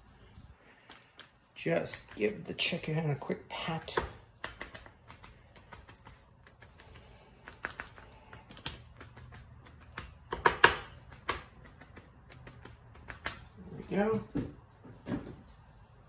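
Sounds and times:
paper towel patting chicken: 0:00.0 - 0:16.0.

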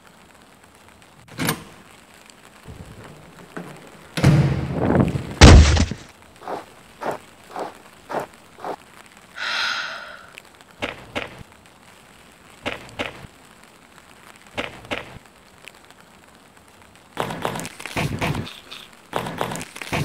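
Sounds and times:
crackling burst: 0:00.0 - 0:20.0
short pitched breath-like sound: 0:09.4 - 0:10.4.

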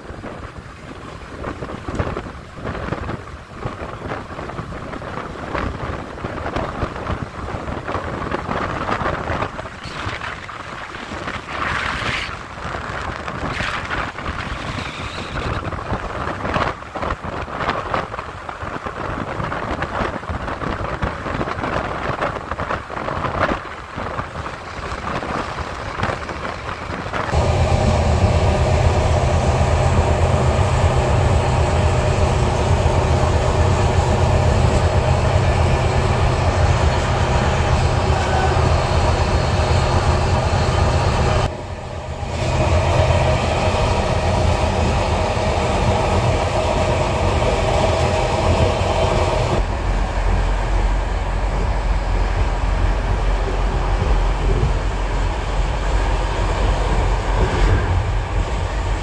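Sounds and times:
rail noise: 0:00.0 - 0:59.0
train rumble inside coach: 0:00.0 - 0:59.0
diesel locomotive engine running: 0:12.3 - 0:59.0.

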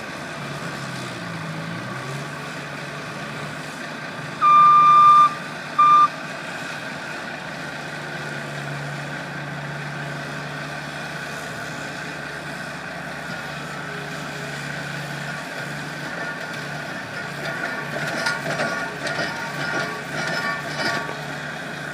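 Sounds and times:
diesel engines droning: 0:00.0 - 0:21.9
backup alarm beeping: 0:04.4 - 0:06.1.

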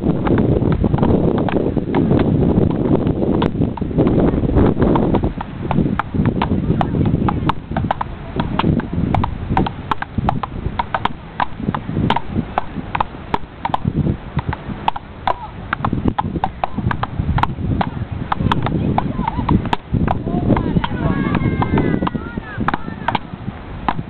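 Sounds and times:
low rumble: 0:00.0 - 0:24.0
wooden paddles hitting ball: 0:04.9 - 0:24.0.

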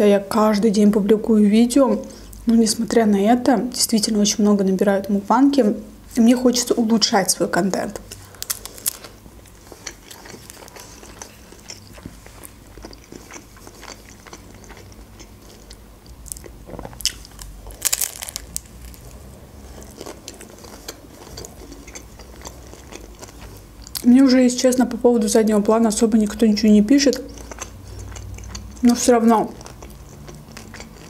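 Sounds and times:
chewing with wet mouth clicks: 0:07.9 - 0:24.1, 0:27.0 - 0:31.0
crunchy bite: 0:08.1 - 0:24.0.

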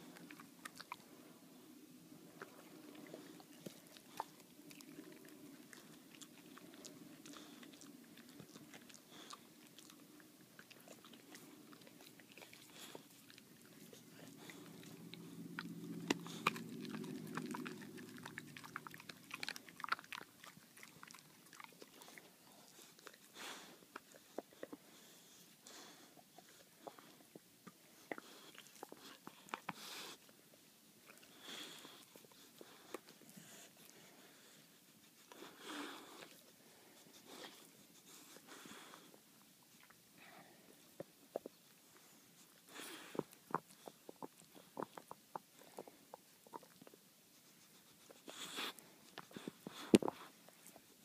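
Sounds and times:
dog chewing: 0:00.0 - 0:01.2, 0:02.1 - 0:30.4, 0:31.0 - 0:40.0, 0:40.9 - 0:51.0
teeth clicking on chew: 0:14.4 - 0:22.2.

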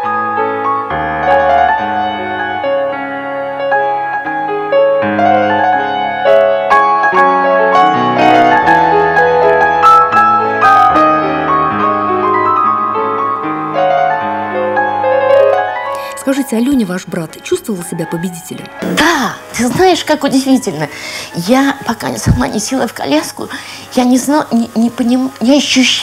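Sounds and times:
slow piano music: 0:00.0 - 0:16.4.

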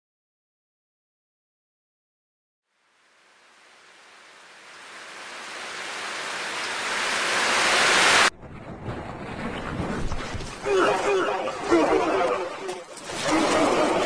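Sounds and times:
rushing surf-like noise: 0:03.0 - 0:08.3.

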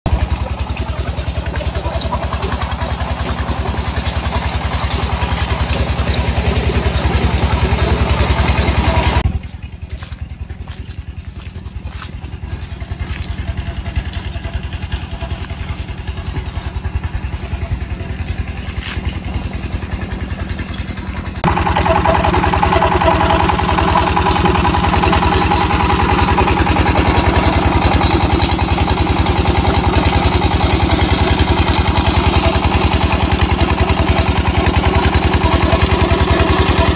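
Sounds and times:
pump engine thumping: 0:00.0 - 0:36.9
water gushing into tank: 0:00.1 - 0:09.3, 0:21.4 - 0:36.9.

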